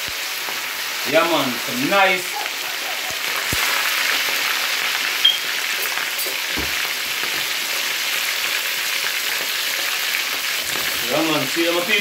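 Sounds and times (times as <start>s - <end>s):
fish sizzling in hot oil: 0.0s - 12.0s
oil popping: 3.1s - 8.4s.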